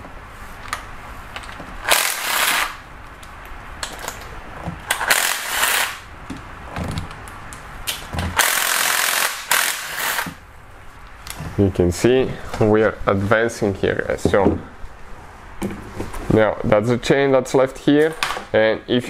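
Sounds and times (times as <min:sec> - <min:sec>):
cordless power tool spinning bolts: 0:01.9 - 0:02.8, 0:04.9 - 0:06.0, 0:08.4 - 0:10.4.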